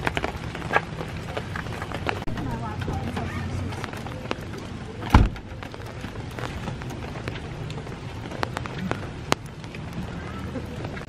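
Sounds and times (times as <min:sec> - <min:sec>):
steady rain into puddles: 0:00.0 - 0:11.0.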